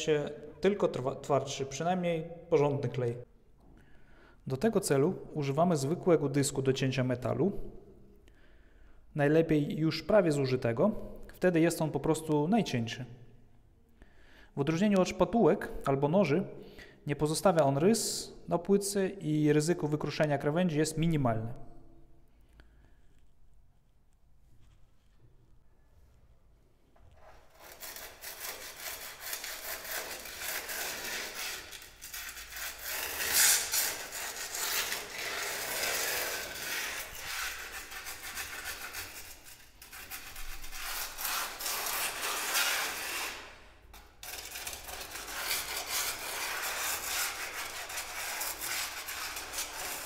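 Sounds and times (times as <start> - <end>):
metal disc scraping tile adhesive: 27.5 - 50.0.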